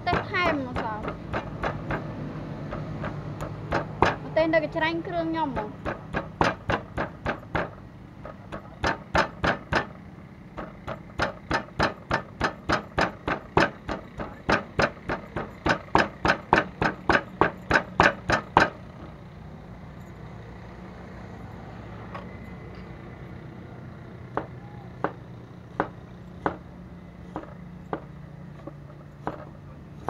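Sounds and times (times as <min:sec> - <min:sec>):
pestle pounding in wooden mortar: 0:00.0 - 0:04.4, 0:05.5 - 0:10.0, 0:10.6 - 0:18.8, 0:25.8 - 0:26.6, 0:27.3 - 0:29.6.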